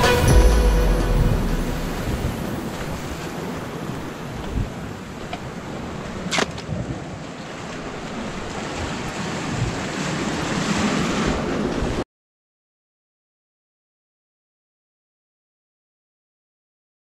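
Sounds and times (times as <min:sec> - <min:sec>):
surf washing against rocks: 0:00.0 - 0:12.0
wind buffeting microphone: 0:01.2 - 0:12.0.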